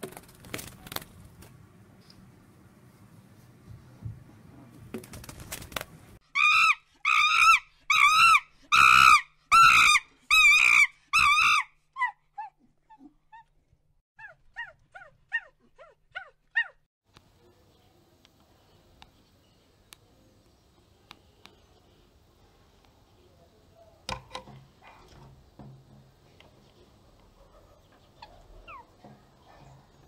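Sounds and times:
monkey high calls: 0:06.3 - 0:12.5, 0:14.2 - 0:16.8, 0:28.1 - 0:29.0.

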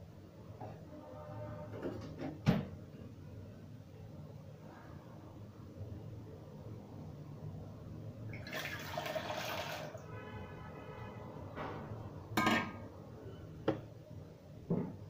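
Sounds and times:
water pouring into metal bowl: 0:08.3 - 0:10.0.

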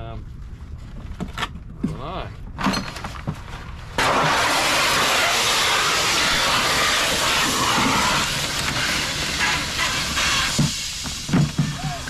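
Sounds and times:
compressed gas hissing: 0:04.0 - 0:12.0.

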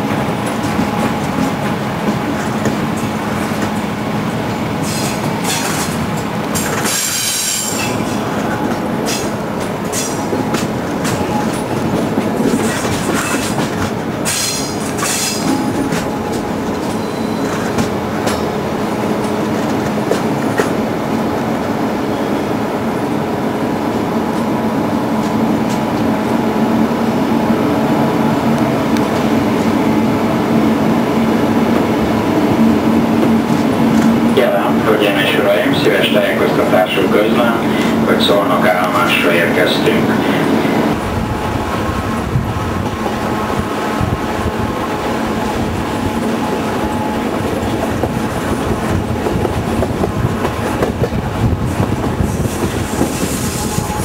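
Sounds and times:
train wheels clacking over joints: 0:04.5 - 0:18.6, 0:45.5 - 0:54.0
wheel flange squeal: 0:16.8 - 0:17.7.

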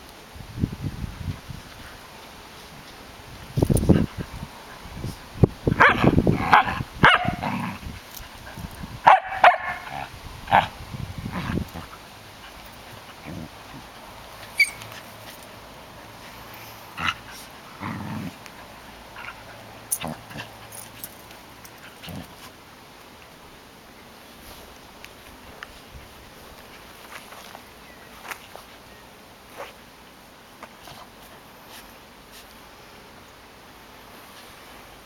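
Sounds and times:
dogs barking and yipping: 0:05.8 - 0:07.6, 0:08.6 - 0:10.7, 0:11.8 - 0:15.6.

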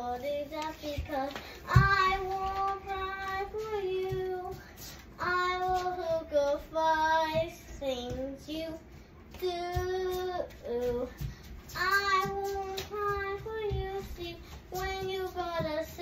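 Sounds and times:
child singing: 0:00.0 - 0:16.0.

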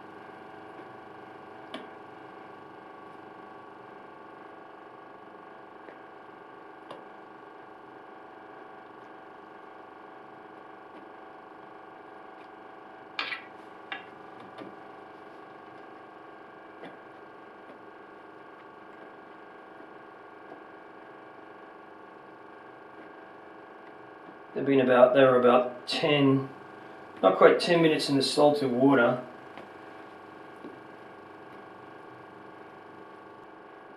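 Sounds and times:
steady hum: 0:00.0 - 0:33.9.

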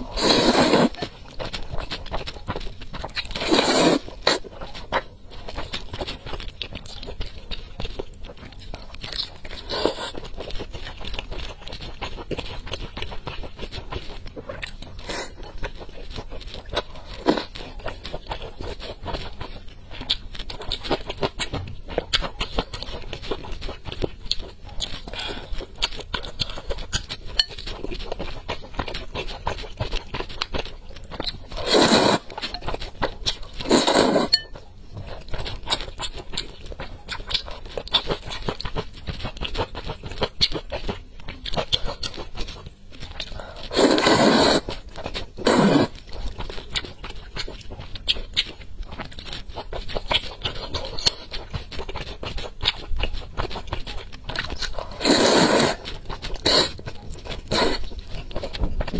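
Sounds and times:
wet chewing and mouth clicks: 0:00.0 - 0:58.9
slurps: 0:00.1 - 0:01.0, 0:31.6 - 0:32.3, 0:33.6 - 0:34.4, 0:43.7 - 0:44.7, 0:55.0 - 0:55.8.

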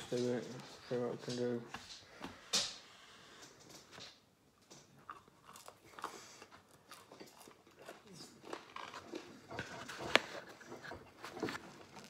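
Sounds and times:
soft chewing: 0:03.3 - 0:12.0
food crunch: 0:04.6 - 0:12.0.

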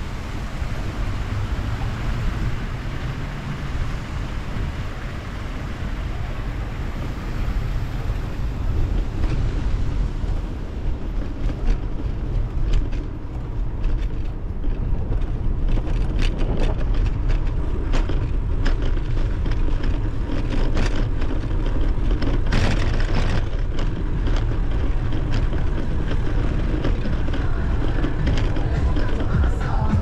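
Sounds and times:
loud rush of noise: 0:00.0 - 0:12.4, 0:22.4 - 0:30.0
wind rumble on microphone: 0:00.0 - 0:30.0.

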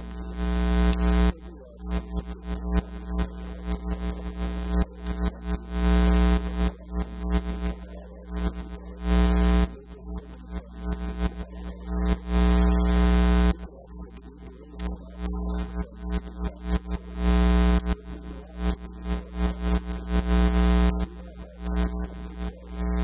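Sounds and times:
electrical mains hum: 0:00.0 - 0:23.0.

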